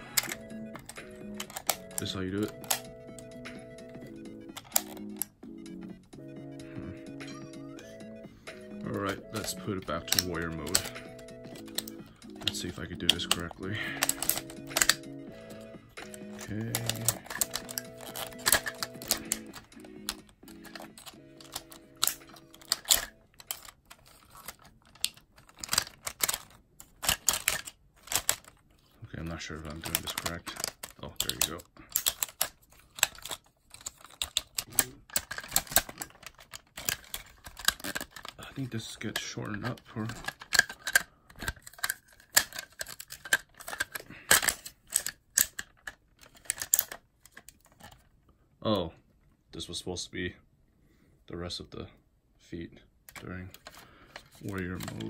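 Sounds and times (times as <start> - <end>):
plastic toy parts clicking: 0.0 - 3.2, 3.9 - 5.4, 8.9 - 28.7, 29.3 - 48.1, 53.1 - 55.0.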